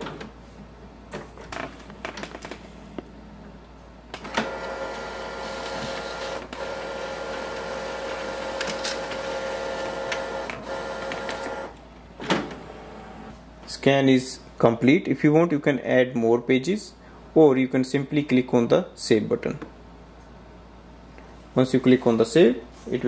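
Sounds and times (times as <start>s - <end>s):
scanner mechanical whir: 4.2s - 13.3s
scanner tones: 4.3s - 11.8s.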